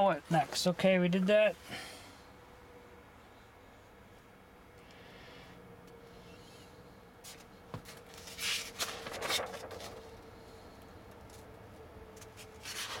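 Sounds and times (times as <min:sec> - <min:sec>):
faint steady hum: 0:00.0 - 0:13.0
paper rustling: 0:07.8 - 0:10.3, 0:12.2 - 0:13.0.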